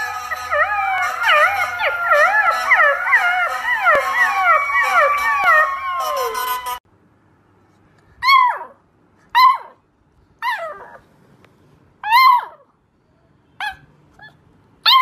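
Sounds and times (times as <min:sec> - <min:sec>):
puppy howling: 0:00.0 - 0:06.8
puppy howling yelps: 0:00.0 - 0:06.8, 0:08.2 - 0:09.8, 0:10.4 - 0:11.0, 0:12.0 - 0:12.7, 0:13.6 - 0:15.0.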